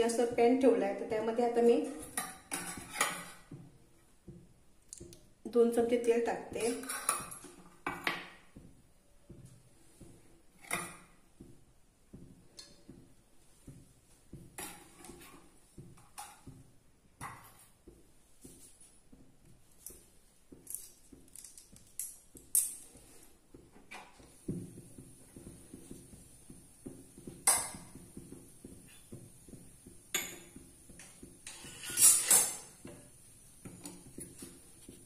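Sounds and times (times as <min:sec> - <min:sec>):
oil crackling in a pan: 0:24.1 - 0:34.8.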